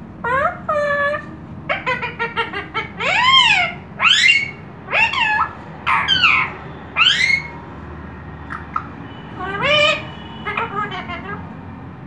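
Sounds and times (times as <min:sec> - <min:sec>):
parrot calling: 0:00.2 - 0:07.6, 0:08.4 - 0:11.4.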